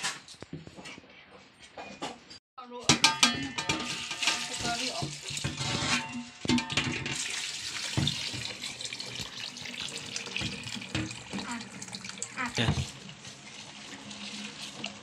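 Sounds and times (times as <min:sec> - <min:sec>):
metal bowls clanking: 0:02.8 - 0:08.7
water pouring onto fruit: 0:07.2 - 0:15.0.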